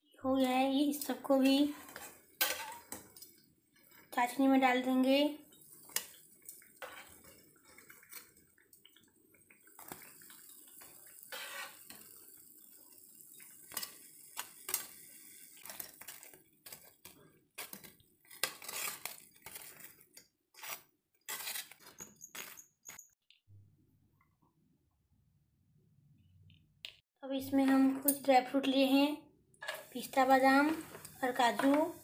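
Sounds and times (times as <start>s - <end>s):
faint sizzle of frying: 0.4s - 20.1s, 29.6s - 32.0s.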